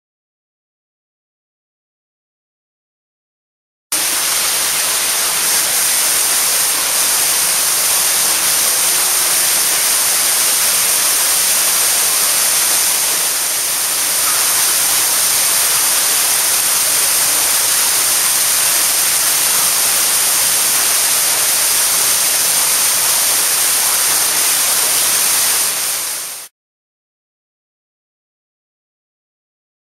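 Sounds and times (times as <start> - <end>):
water splashing down rock face: 4.0 - 26.5.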